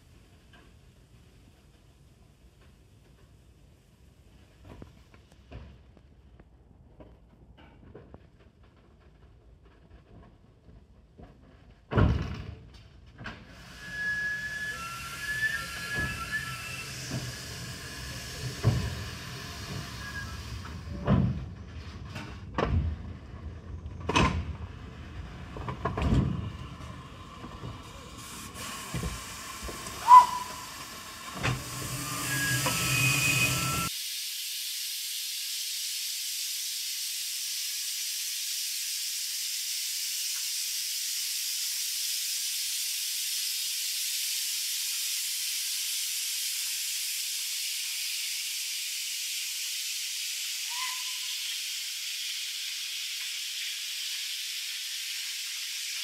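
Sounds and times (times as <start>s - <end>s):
locomotive steam hissing: 13.4s - 22.5s, 24.6s - 56.0s.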